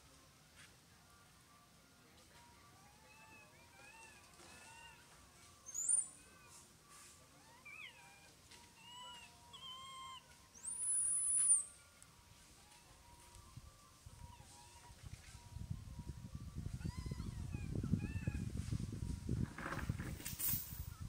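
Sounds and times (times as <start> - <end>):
macaques coo calls: 2.9 - 5.1, 7.4 - 11.7
high whistling squeals: 5.6 - 11.8.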